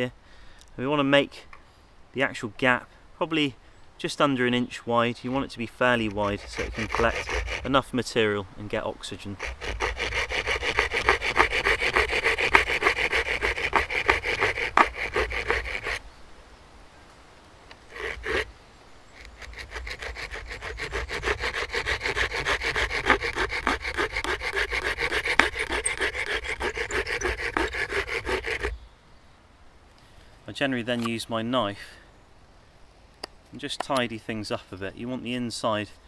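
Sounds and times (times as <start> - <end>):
hand saw cutting wood: 5.3 - 7.9, 9.2 - 16.0, 17.8 - 18.5, 19.2 - 28.7
short scrape: 5.4 - 7.8, 9.2 - 16.0, 17.9 - 18.5, 19.1 - 28.8.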